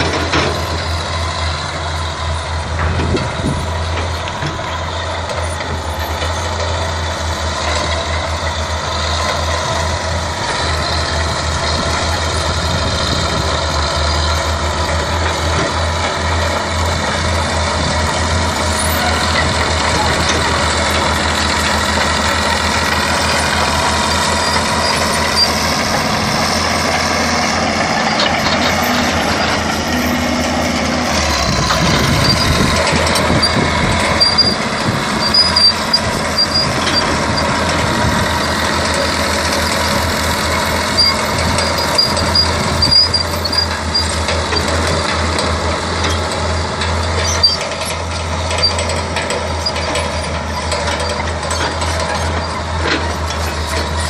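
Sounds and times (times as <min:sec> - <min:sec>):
bulldozer diesel engine: 0:00.0 - 0:54.0
clanks and squeaks of steel tracks: 0:00.0 - 0:54.0.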